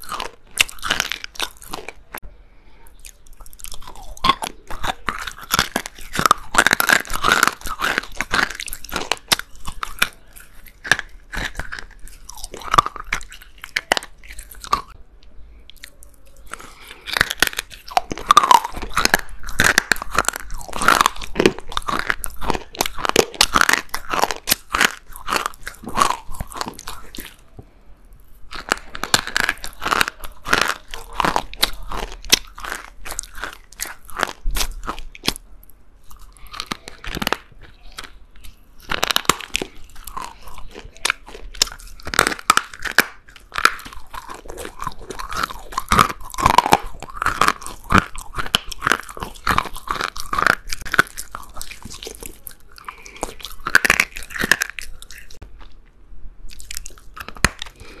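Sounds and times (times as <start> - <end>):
chewing crunchy clay: 0.0 - 2.2, 2.8 - 55.9, 56.5 - 58.0.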